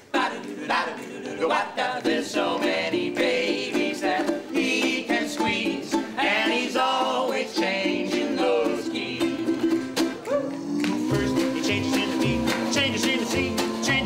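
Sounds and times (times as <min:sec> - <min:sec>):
person singing: 0:00.0 - 0:14.0
ukulele strumming: 0:00.0 - 0:14.0
walking upright bass: 0:00.2 - 0:14.0.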